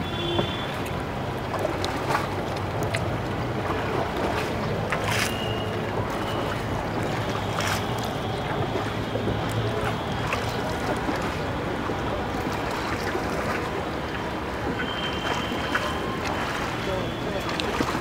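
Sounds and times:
water washing around boat: 0.0 - 18.0
wind: 0.0 - 18.0.

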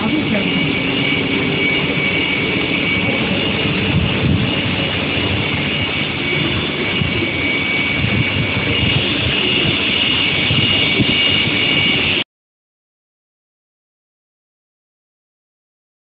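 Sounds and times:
high-pitched machine tones: 0.0 - 12.2
machinery noise with rumble: 0.0 - 12.2.

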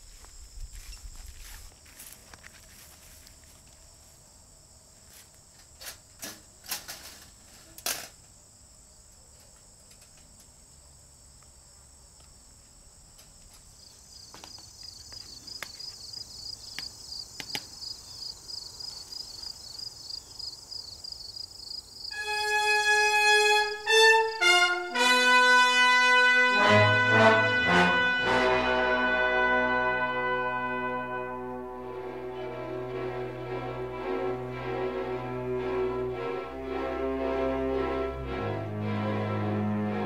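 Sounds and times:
insects chirping: 0.0 - 25.2
brass music: 22.1 - 40.0.

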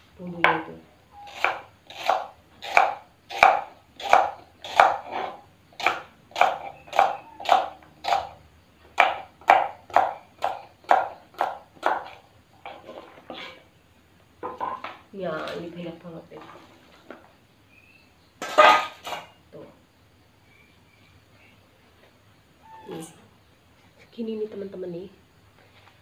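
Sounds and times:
knife chopping on wooden board: 1.3 - 8.3, 9.0 - 12.2.

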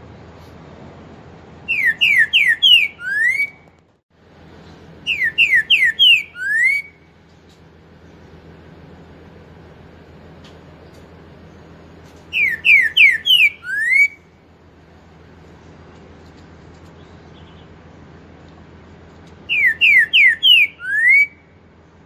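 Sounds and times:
bird singing whistled notes: 1.6 - 3.7, 5.0 - 7.1, 12.3 - 14.3, 19.4 - 21.6.

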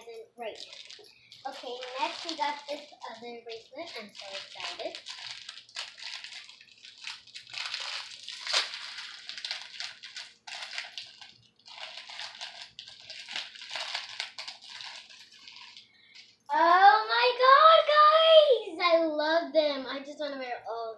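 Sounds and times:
plastic bag crinkling: 0.0 - 16.5.

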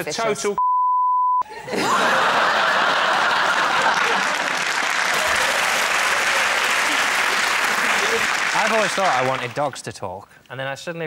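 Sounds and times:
censor bleep: 0.6 - 1.4
studio audience applauding: 1.8 - 9.8.

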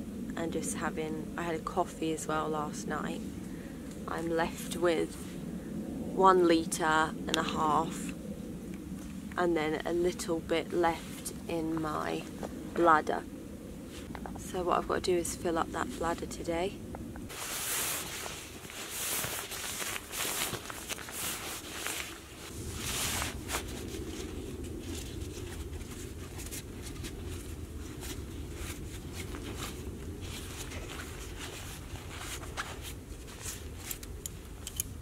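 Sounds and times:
nylon fabric rustling and crumpling: 17.3 - 34.0
low rumble: 18.1 - 35.0.

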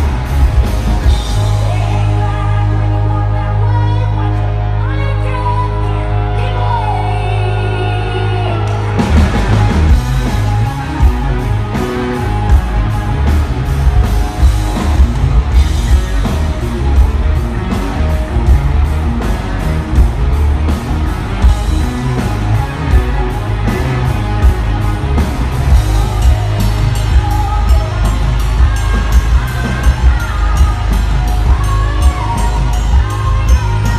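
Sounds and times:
heavy drum beat: 0.0 - 2.2, 9.0 - 33.9
bass guitar: 0.0 - 33.9
electric guitar: 0.0 - 33.9
woman singing: 1.2 - 9.0, 25.9 - 33.9.

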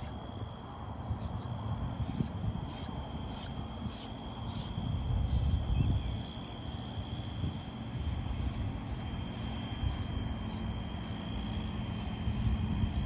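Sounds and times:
wind on microphone: 0.7 - 8.7.

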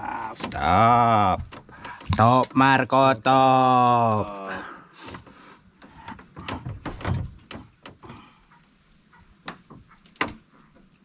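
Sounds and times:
irregular knocks and clicks: 0.4 - 2.8, 5.0 - 11.0.

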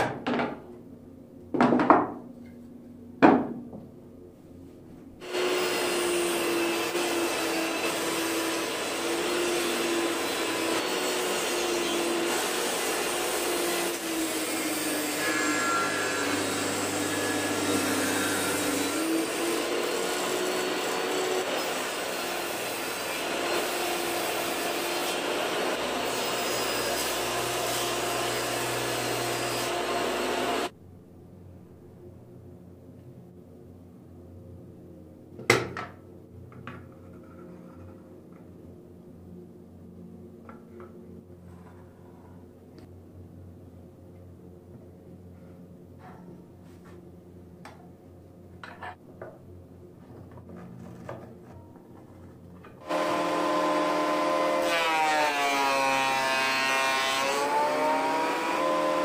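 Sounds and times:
wooden boards knocked on metal: 1.6 - 2.2, 3.2 - 3.8
table saw cutting wood: 5.2 - 30.7, 52.8 - 59.0.

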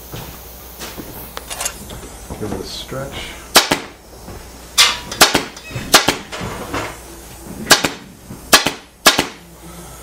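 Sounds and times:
pneumatic staple gun shots: 3.5 - 4.0, 4.8 - 6.4, 7.7 - 9.4.

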